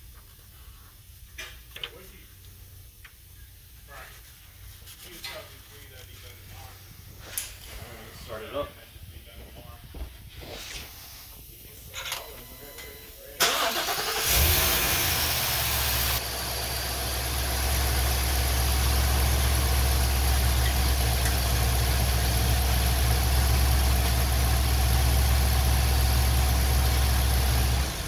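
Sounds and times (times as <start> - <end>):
truck engine idling: 13.5 - 28.0.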